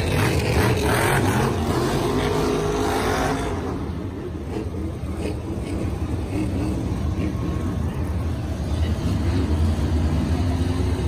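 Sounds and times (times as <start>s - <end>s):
monster truck engine rumbling: 0.0s - 11.0s.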